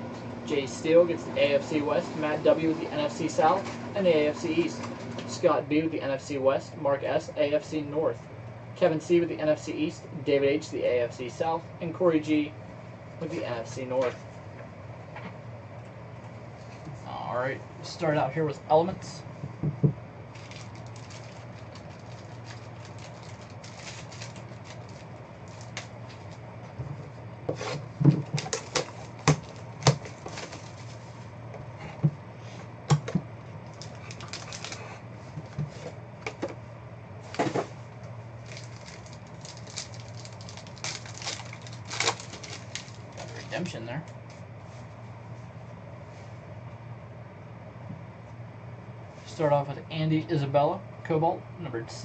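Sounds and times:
foil packs tearing: 0:20.3 - 0:26.4, 0:28.4 - 0:31.0, 0:33.7 - 0:35.0, 0:38.4 - 0:43.7.

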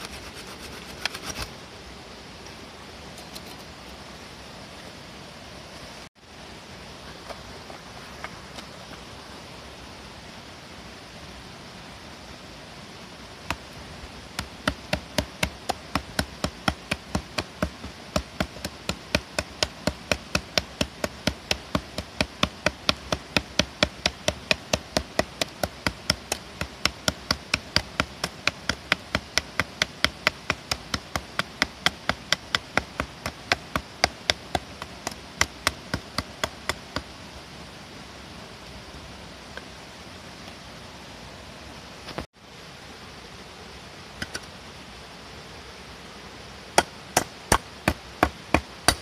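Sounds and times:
hatchet chopping into wood: 0:14.4 - 0:36.8, 0:46.8 - 0:49.0.

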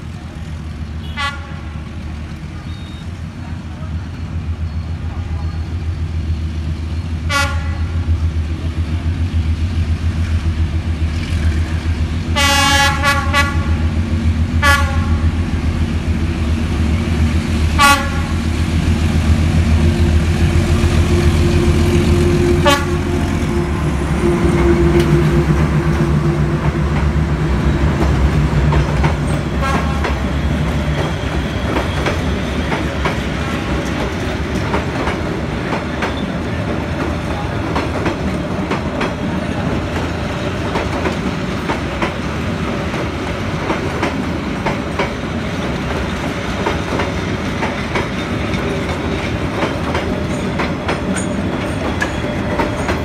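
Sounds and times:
diesel locomotive engine running: 0:00.0 - 0:53.0
train horn toots: 0:01.0 - 0:01.8, 0:07.3 - 0:08.0, 0:12.4 - 0:13.8, 0:14.6 - 0:15.2, 0:17.8 - 0:18.4, 0:21.1 - 0:25.6, 0:29.6 - 0:30.1
train wheels clacking on rail joints: 0:24.4 - 0:53.0.

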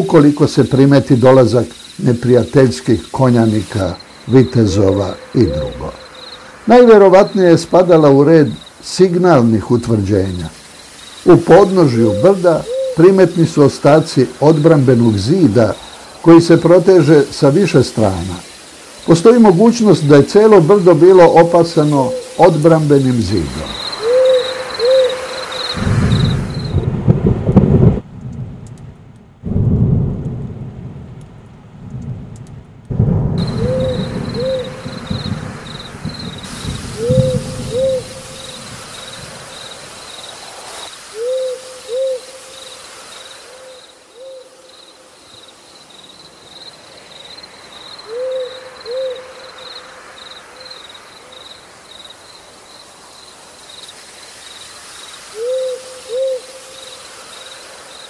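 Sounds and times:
high insect chirring: 0:00.0 - 0:27.0, 0:33.0 - 0:58.0
rain hiss: 0:00.0 - 0:58.0
owl hooting: 0:03.2 - 0:07.9, 0:11.3 - 0:15.3, 0:19.7 - 0:26.8, 0:33.4 - 0:39.2, 0:41.1 - 0:45.0, 0:48.0 - 0:50.9, 0:55.3 - 0:57.0
low rumbles: 0:25.8 - 0:38.8.

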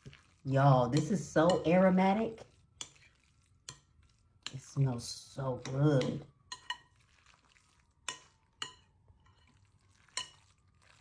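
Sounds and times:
spoon clinking against glass bowl: 0:05.6 - 0:07.0, 0:08.0 - 0:10.5.

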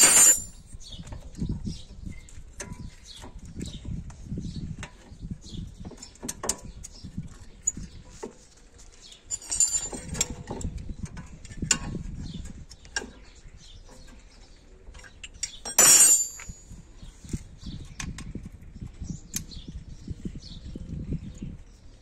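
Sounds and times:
ringing metal clank: 0:00.0 - 0:00.6, 0:09.3 - 0:10.2, 0:15.7 - 0:16.7
wrenches clinking on metal: 0:00.0 - 0:00.6, 0:09.3 - 0:10.6, 0:15.0 - 0:16.7.

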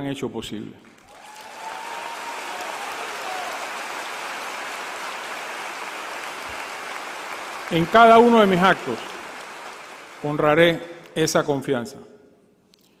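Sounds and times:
large audience applauding: 0:00.9 - 0:10.8.

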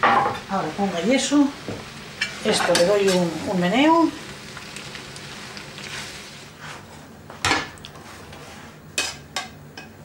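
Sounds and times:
pasta stirred in frying pan: 0:00.4 - 0:07.0.

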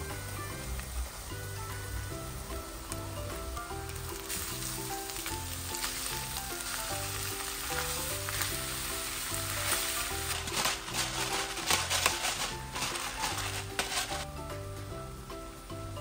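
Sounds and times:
background music: 0:00.0 - 0:16.0
chicken sizzling in oil: 0:00.0 - 0:16.0
spatula scraping pan: 0:07.4 - 0:14.3.

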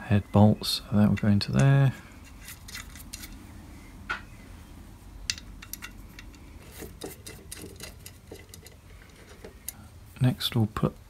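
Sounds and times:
metal brackets clicking and knocking: 0:01.0 - 0:03.4, 0:05.2 - 0:09.8.

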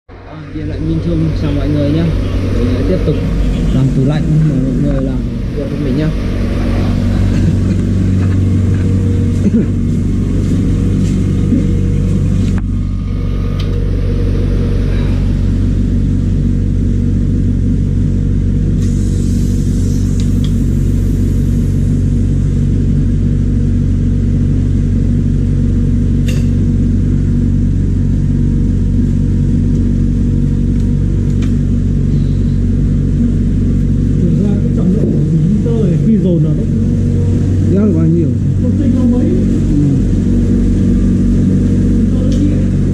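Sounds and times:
electric motor humming: 0:00.6 - 0:42.9
valve hissing: 0:18.8 - 0:22.2.

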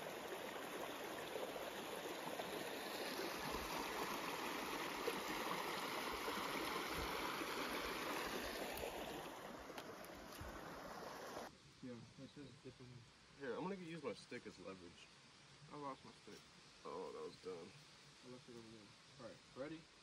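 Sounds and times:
creek splashing over rocks: 0:00.0 - 0:11.5.

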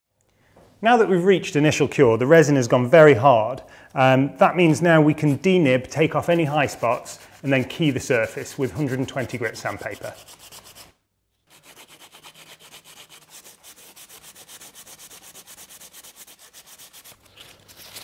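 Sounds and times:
sandpaper rubbing by hand: 0:04.6 - 0:18.0.

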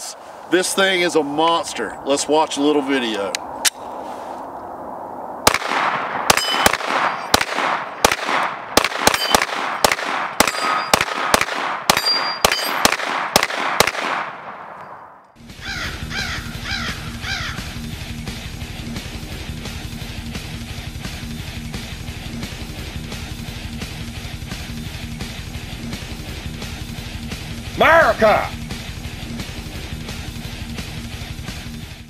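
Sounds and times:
pistol shots echoing: 0:05.4 - 0:15.1
metallic ring: 0:06.3 - 0:07.3, 0:09.1 - 0:09.4, 0:10.5 - 0:11.0, 0:12.0 - 0:12.8.

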